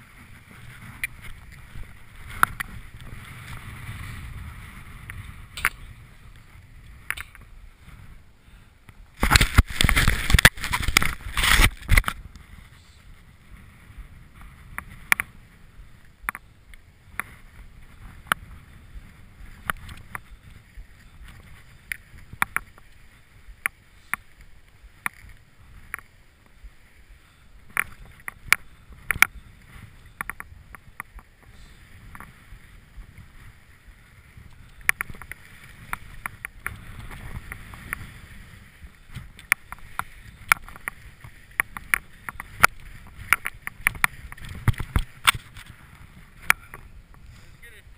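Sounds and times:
skis sliding on snow: 0.0s - 47.9s
wind rush on microphone: 0.0s - 47.9s
sharp clicks and knocks: 41.6s - 45.7s.

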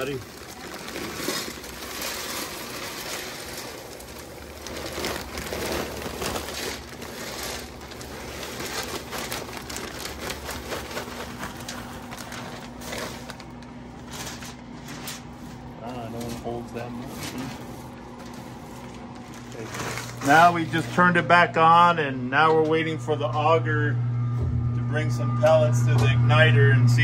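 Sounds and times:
pellets rattling into metal hopper: 0.0s - 15.3s, 19.3s - 20.9s
bag crinkling: 0.0s - 21.0s.

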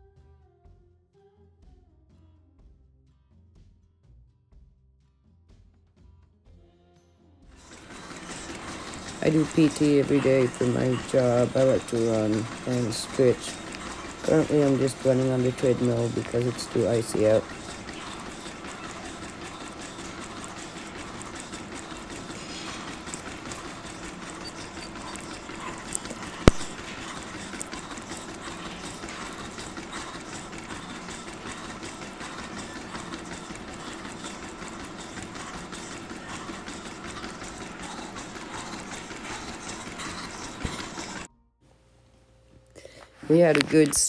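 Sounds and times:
treadmill motor and belt: 7.5s - 44.0s
footfalls on treadmill: 7.6s - 41.3s.

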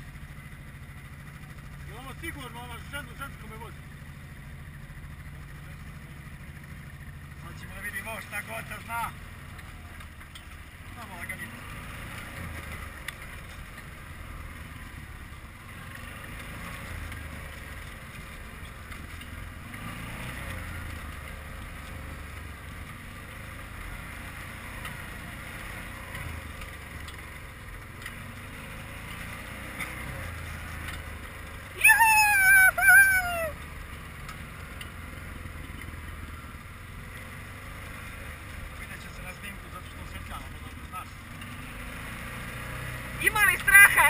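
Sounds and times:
quad bike engine running: 0.0s - 44.0s
high-pitched swooping cry: 31.8s - 33.6s.

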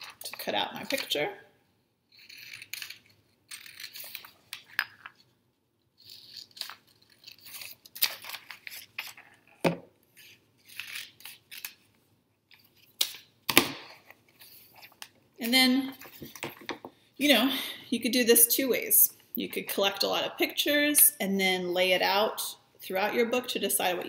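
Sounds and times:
scissors snipping paper: 2.2s - 4.6s, 6.1s - 9.2s
paper page rustling: 6.1s - 9.6s.

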